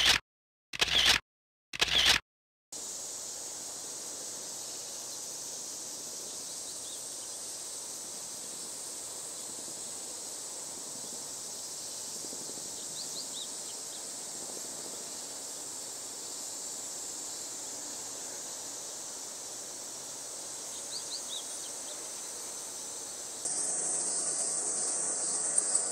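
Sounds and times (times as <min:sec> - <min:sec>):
faint bird chirps: 0:00.8 - 0:01.2
high-pitched insect chorus: 0:02.8 - 0:25.9.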